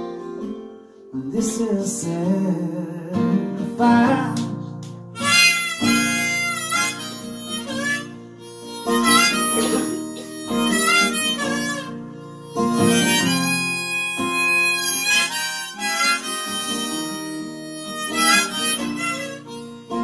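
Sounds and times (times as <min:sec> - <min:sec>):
strummed acoustic guitar: 0:00.0 - 0:20.0
harmonica solo: 0:05.2 - 0:20.0.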